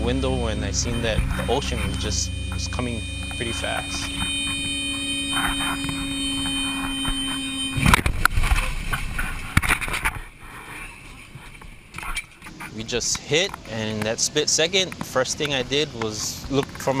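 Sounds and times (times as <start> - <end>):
warning alarm steady tone: 0.0 - 12.4.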